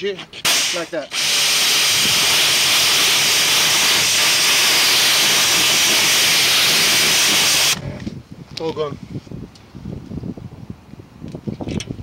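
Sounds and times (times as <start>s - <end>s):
steam cleaner jet hissing: 0.4s - 7.8s.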